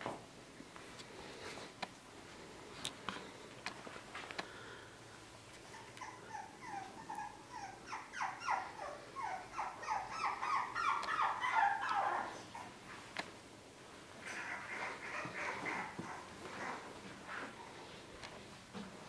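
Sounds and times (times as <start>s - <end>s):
puppy whimpering and yipping: 5.6s - 12.8s, 14.2s - 16.9s.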